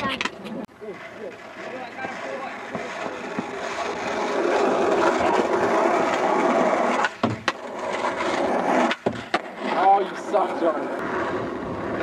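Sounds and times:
skateboard clacks: 0:00.0 - 0:12.0
skateboard wheels rolling: 0:00.0 - 0:12.0.

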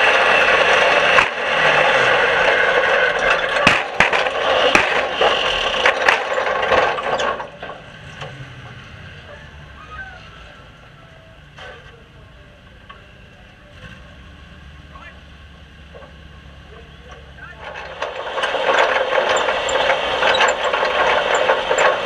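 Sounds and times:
car body rattling and knocking: 0:00.0 - 0:08.8, 0:17.2 - 0:22.0
race car engine running loudly: 0:00.0 - 0:22.0.

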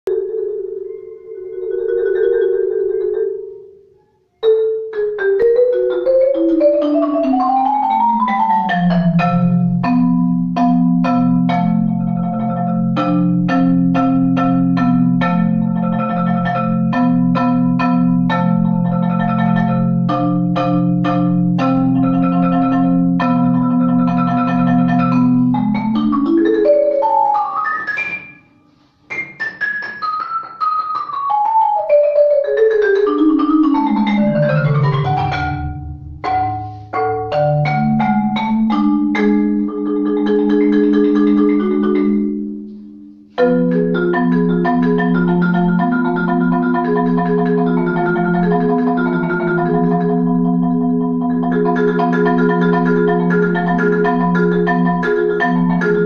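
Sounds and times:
marimba played with mallets: 0:00.1 - 0:56.0.

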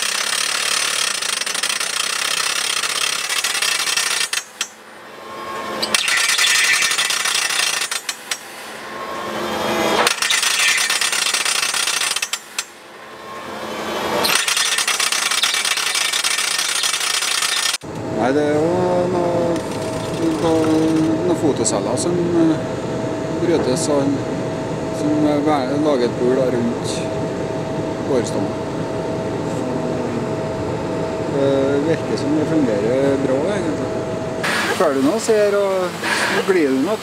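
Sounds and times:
rock drill hammering: 0:00.0 - 0:04.8, 0:05.8 - 0:08.5, 0:09.9 - 0:12.8.

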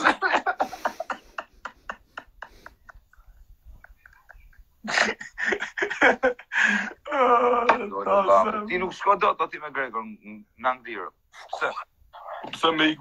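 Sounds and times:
person speaking: 0:10.7 - 0:13.0
faint murmuring: 0:11.3 - 0:13.0.

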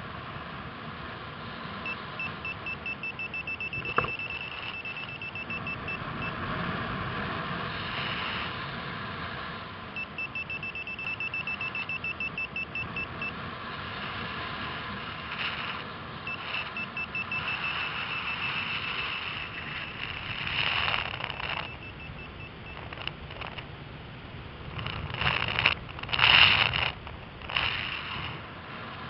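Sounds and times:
variometer beeping: 0:01.8 - 0:06.4, 0:10.0 - 0:13.4, 0:16.3 - 0:23.7
wind rushing across microphone: 0:13.0 - 0:29.0.

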